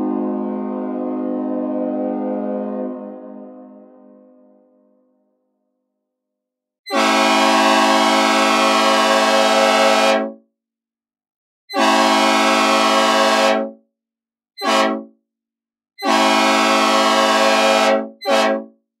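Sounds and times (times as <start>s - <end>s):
synthesized locomotive air horn blasts: 0.0s - 4.7s, 6.9s - 10.4s, 11.7s - 13.8s, 14.6s - 15.1s, 16.0s - 18.8s.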